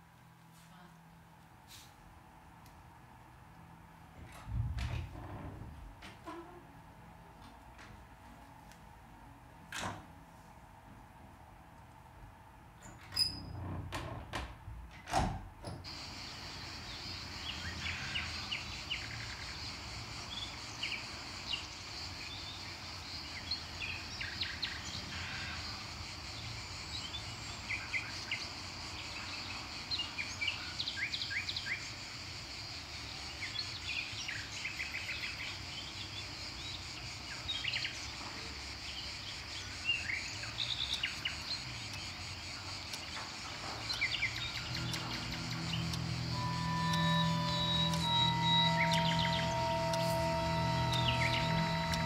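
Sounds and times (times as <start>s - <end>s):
outdoor background noise: 0.0s - 52.0s
small birds chirping: 25.7s - 49.8s.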